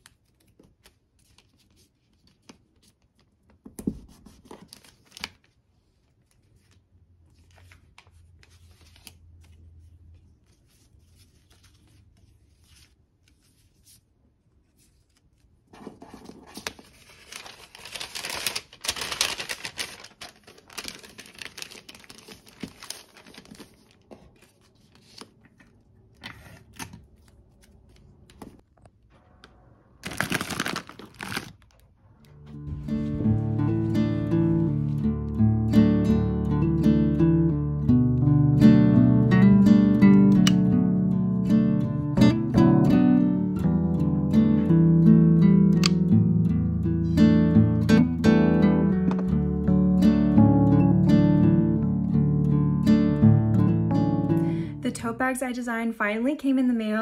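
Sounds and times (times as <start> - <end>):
paper rustling and crinkling: 0.0 - 28.6, 30.0 - 31.9.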